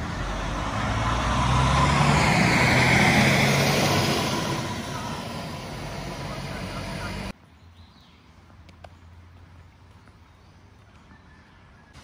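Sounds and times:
large vehicle engine passing: 0.0s - 7.3s.

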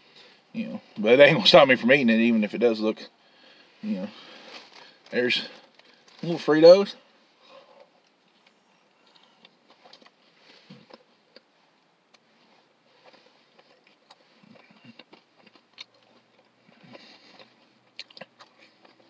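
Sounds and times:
chewing crunchy chips: 7.8s - 11.5s, 12.9s - 19.0s.

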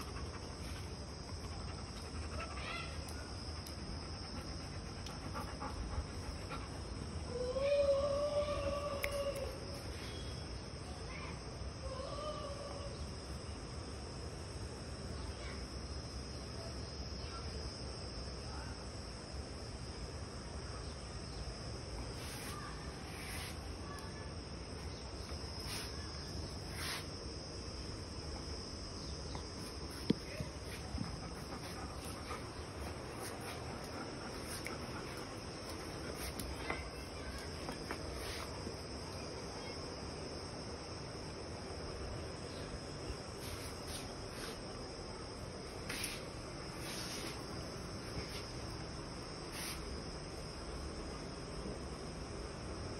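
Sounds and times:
high-pitched insect drone: 22.0s - 51.0s.

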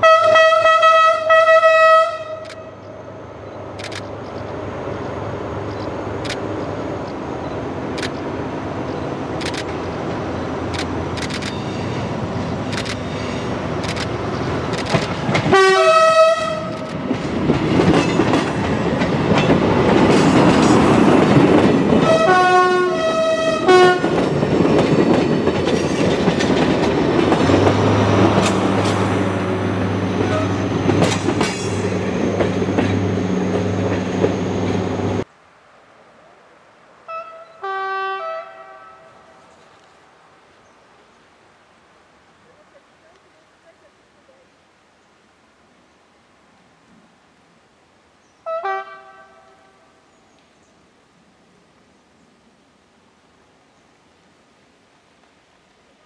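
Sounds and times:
train horn blasts: 0.0s - 2.8s, 15.5s - 16.8s, 22.0s - 24.2s, 30.2s - 30.8s, 37.1s - 39.4s, 48.4s - 50.0s
diesel railcar engine drone: 0.0s - 35.3s
wheels clicking over rail joints: 16.6s - 22.3s, 23.9s - 29.2s, 30.1s - 34.8s.

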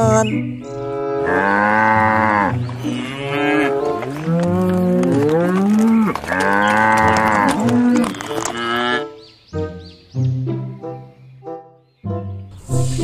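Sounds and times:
cattle mooing: 0.8s - 9.2s.

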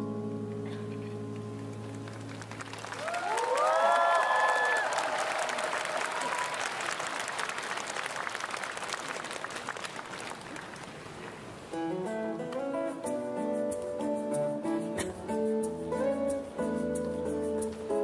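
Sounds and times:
guitar picking single notes: 0.0s - 2.5s, 11.7s - 18.0s
audience applause: 1.6s - 11.2s.

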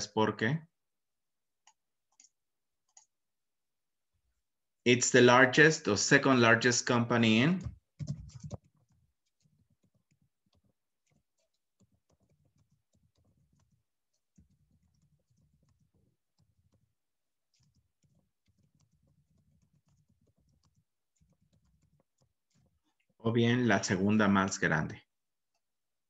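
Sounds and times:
faint keyboard typing: 1.6s - 3.2s, 7.6s - 23.2s.

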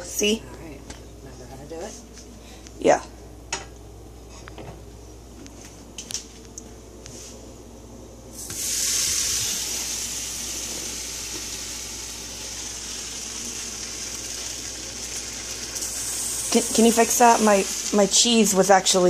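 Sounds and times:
bread sizzling in frying pan: 8.4s - 19.0s.

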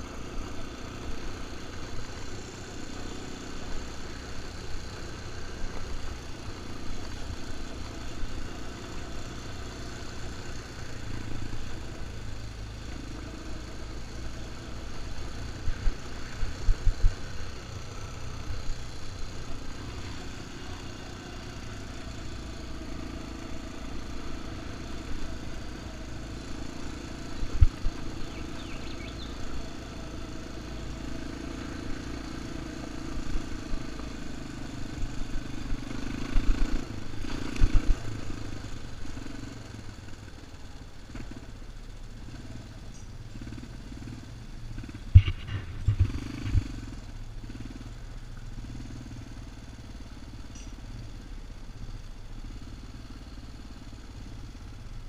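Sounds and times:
quad engine running: 0.0s - 55.0s
sharp knocks and clatter: 44.8s - 46.8s.

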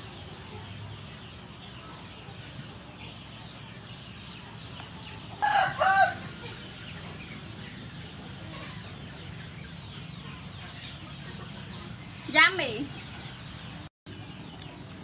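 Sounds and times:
faint bird chirping: 0.0s - 15.0s.

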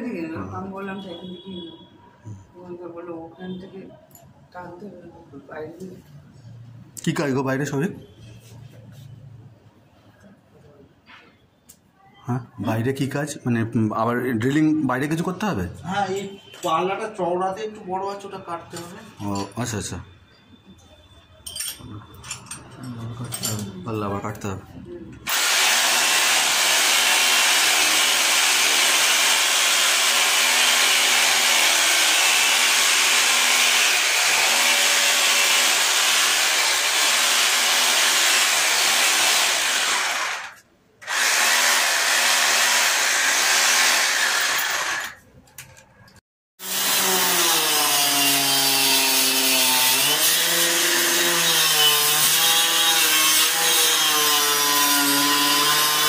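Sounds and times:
electric planer shaving wood: 25.3s - 45.1s, 46.6s - 56.0s
power drill boring into wood: 25.3s - 45.2s, 46.6s - 56.0s.

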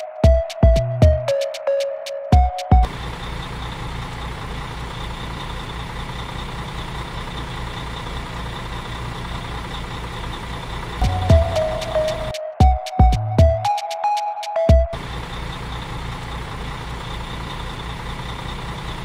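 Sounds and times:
electronic music beats: 0.0s - 2.9s, 11.0s - 15.0s
truck engine idling: 0.0s - 13.8s, 14.6s - 19.0s.

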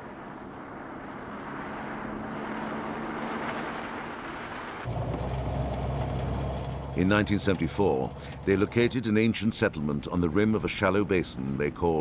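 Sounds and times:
pickup engine and tyre noise: 0.0s - 12.0s
deep engine hum: 4.9s - 9.4s.

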